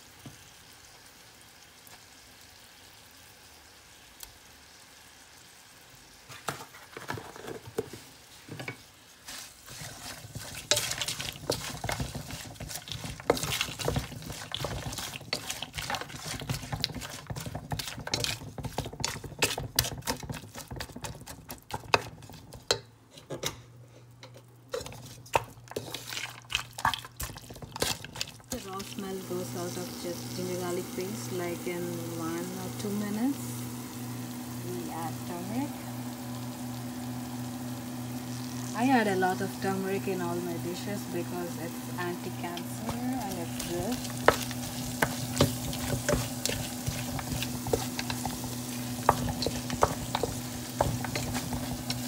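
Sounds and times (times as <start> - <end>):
onions sizzling: 0.0 - 22.8, 24.1 - 52.0
spoon scraping cooking pot: 9.7 - 23.6, 24.2 - 28.4, 42.8 - 52.0.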